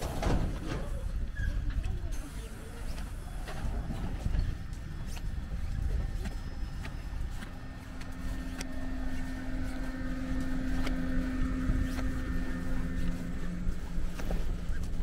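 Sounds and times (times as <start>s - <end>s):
train rumble inside carriage: 0.0s - 15.0s
electric hum: 3.0s - 15.0s.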